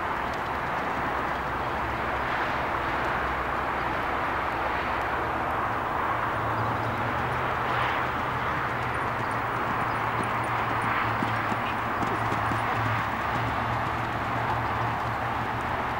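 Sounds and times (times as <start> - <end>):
steady rushing noise: 0.0 - 15.9
hoofbeats on sand: 6.6 - 15.9.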